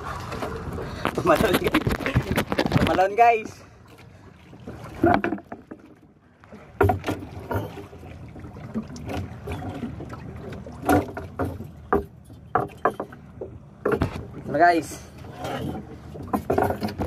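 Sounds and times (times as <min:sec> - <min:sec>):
water: 0:00.0 - 0:17.0
wind: 0:00.0 - 0:17.0
knocks in wooden boat: 0:04.9 - 0:05.9, 0:06.7 - 0:07.8, 0:10.8 - 0:13.2, 0:13.8 - 0:14.4, 0:15.8 - 0:17.0.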